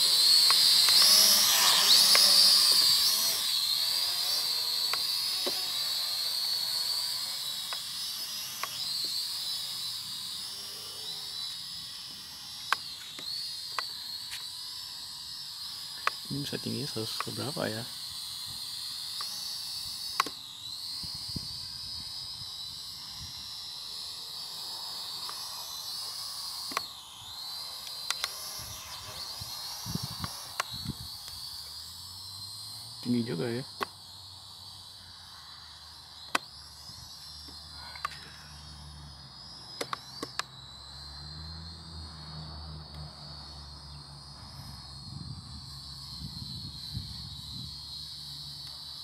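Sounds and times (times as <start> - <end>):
drone propeller whine: 0.0 - 49.0
sharp click: 20.1 - 20.4, 27.8 - 28.4, 39.8 - 40.5.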